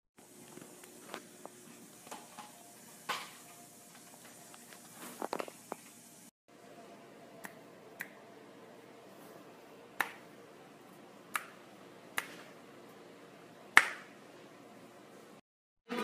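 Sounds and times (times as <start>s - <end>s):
faint room hum: 0.2s - 15.4s
fingers snapping: 7.4s - 8.2s, 10.0s - 10.2s, 11.3s - 11.6s, 12.2s - 12.4s, 13.8s - 14.1s.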